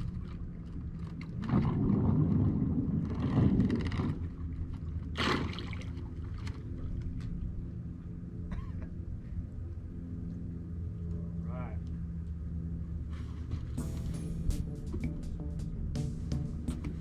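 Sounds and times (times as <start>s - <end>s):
water churning: 0.0s - 7.9s.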